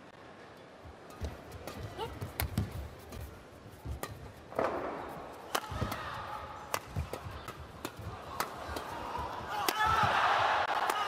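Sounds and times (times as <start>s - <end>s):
racket striking shuttlecock: 3.9s - 10.0s.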